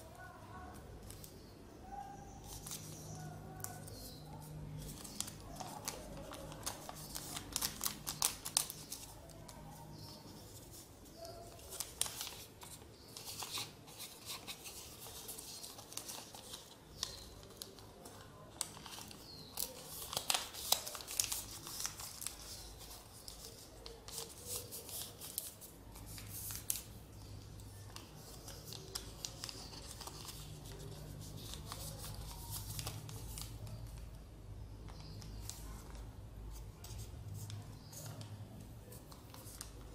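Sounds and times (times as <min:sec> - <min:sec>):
paper crackling and rustling: 0:00.5 - 0:01.5, 0:02.4 - 0:34.1, 0:34.9 - 0:39.9.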